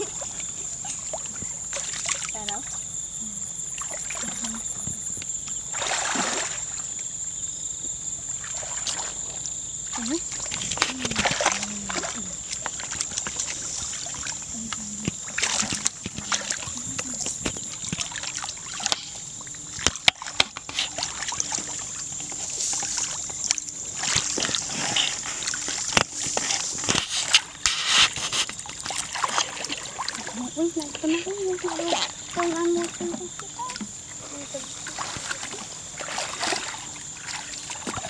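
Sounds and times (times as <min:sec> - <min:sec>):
muddy water splashing: 0:00.0 - 0:03.0, 0:03.6 - 0:07.0, 0:08.2 - 0:38.0.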